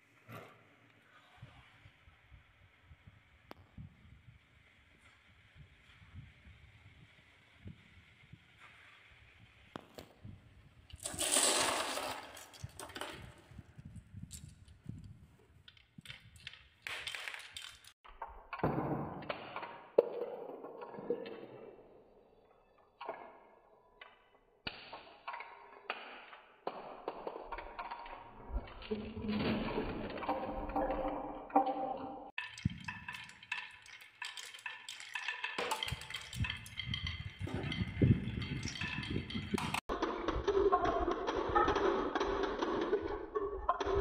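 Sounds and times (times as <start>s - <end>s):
marbles rolling on wooden track: 10.9s - 18.0s, 25.2s - 44.0s
marbles striking wood: 10.9s - 21.7s, 24.0s - 44.0s
glass marbles clicking together: 32.3s - 39.9s.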